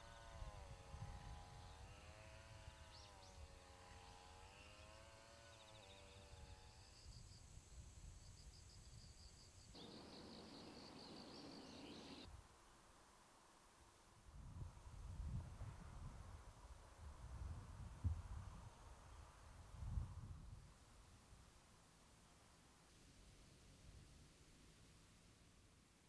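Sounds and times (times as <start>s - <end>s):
faint wavering hum: 0.0s - 12.3s
insects chirping: 2.6s - 12.3s.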